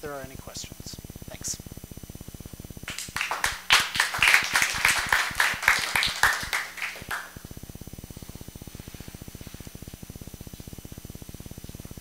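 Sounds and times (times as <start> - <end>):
faint low hum: 0.0 - 12.0
audience applauding: 2.9 - 7.3.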